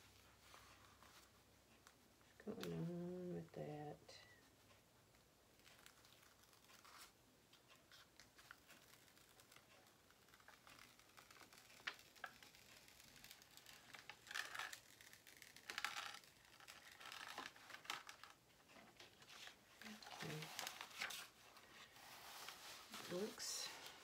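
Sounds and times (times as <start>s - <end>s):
plastic film crinkling and rustling: 5.5s - 24.0s.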